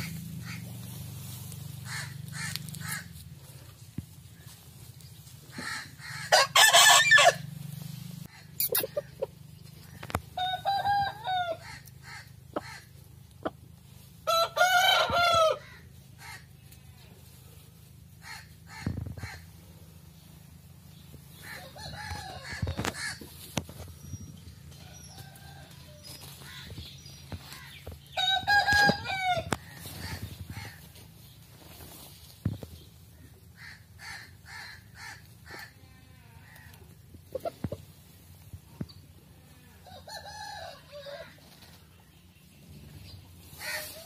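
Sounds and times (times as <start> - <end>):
chickens clucking: 0.0 - 6.6, 7.5 - 16.6, 21.2 - 35.8, 36.6 - 39.2
rooster crowing: 6.0 - 7.5, 10.4 - 11.8, 14.2 - 15.8, 21.5 - 23.0, 24.8 - 26.1, 28.2 - 30.2, 39.8 - 41.4.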